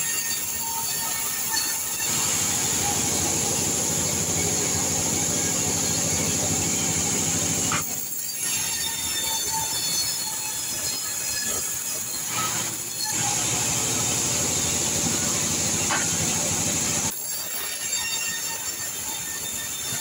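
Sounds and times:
band saw whining through wood: 0.0s - 20.0s
machine hum: 2.1s - 8.0s, 13.2s - 17.1s.

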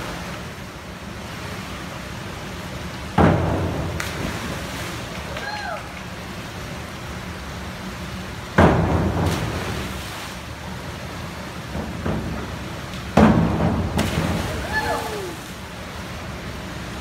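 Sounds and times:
steady indoor pool hum: 0.0s - 17.0s
diver splashing into pool: 13.2s - 15.6s.

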